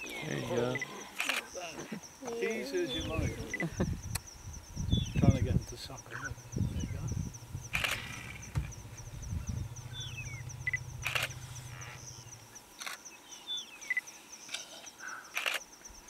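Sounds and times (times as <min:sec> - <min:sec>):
insects chirring: 0:00.0 - 0:16.0
low hum: 0:03.2 - 0:12.6
sharp clicks: 0:07.7 - 0:08.8, 0:10.6 - 0:11.4.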